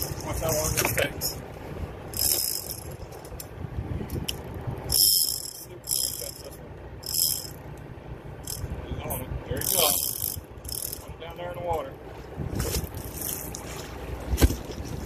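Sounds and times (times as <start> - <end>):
steady low rumble: 0.0 - 15.0
fishing reel clicker ratcheting: 2.1 - 3.5, 4.3 - 7.8, 8.4 - 8.7, 9.6 - 11.1.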